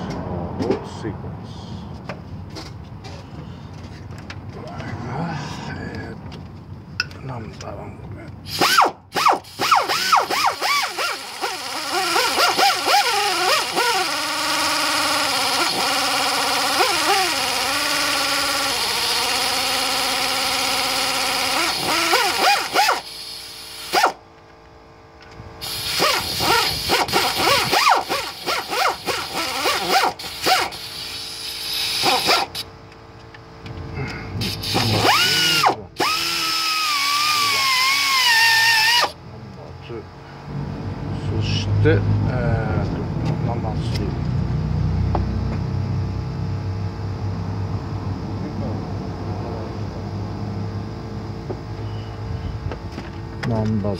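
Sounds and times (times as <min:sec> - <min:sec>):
air ratchet clicking and whining: 0:08.4 - 0:24.2, 0:25.2 - 0:33.3, 0:34.4 - 0:39.2.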